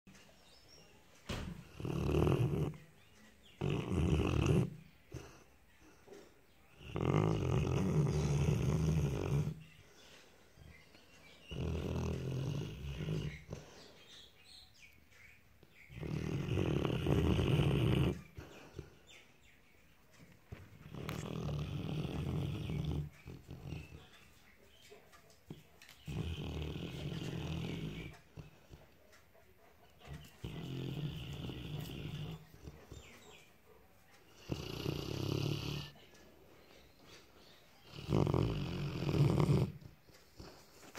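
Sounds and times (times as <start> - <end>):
dog breathing: 1.5 - 14.5, 15.8 - 19.4, 20.2 - 40.9
dog snoring: 1.6 - 2.8, 3.6 - 5.5, 6.7 - 9.6, 11.4 - 13.8, 15.9 - 18.9, 20.5 - 24.1, 26.0 - 28.7, 30.3 - 33.0, 34.3 - 36.0, 37.8 - 40.7.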